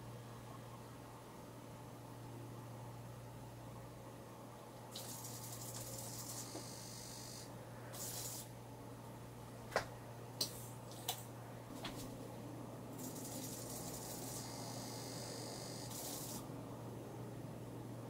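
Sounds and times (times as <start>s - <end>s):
steady low hum: 0.0s - 18.0s
hissing spray bursts: 7.9s - 8.5s.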